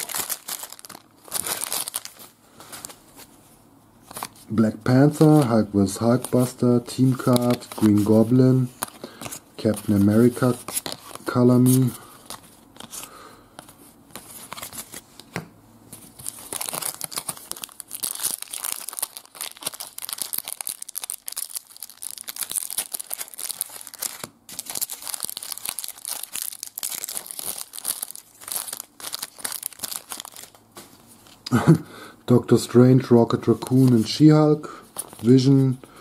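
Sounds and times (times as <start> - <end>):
foil wrapper crinkling and tearing: 0.0 - 3.0, 4.1 - 13.0, 16.0 - 31.4, 34.8 - 35.6.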